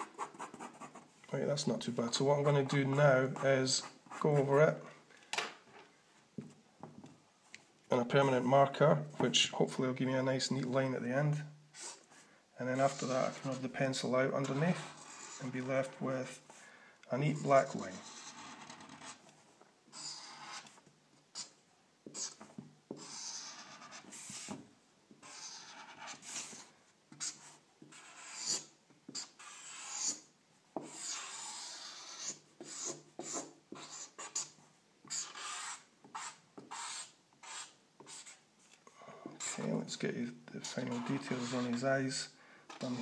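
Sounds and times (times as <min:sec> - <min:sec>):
marker rubbing on paper: 0:00.0 - 0:01.1, 0:12.7 - 0:16.0, 0:17.3 - 0:19.2, 0:19.9 - 0:24.6, 0:25.2 - 0:38.4, 0:39.4 - 0:39.8, 0:40.6 - 0:43.0.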